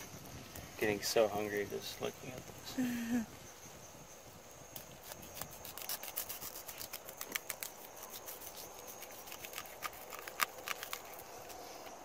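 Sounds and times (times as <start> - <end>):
insect chirring: 0.0 - 12.0
knife crunching through bones: 5.0 - 11.9.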